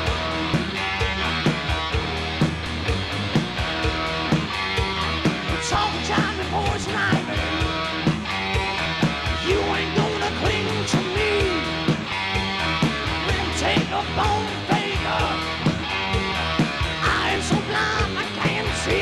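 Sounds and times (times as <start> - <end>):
lead guitar bent notes: 0.0 - 19.0
rock band playing: 0.0 - 19.0.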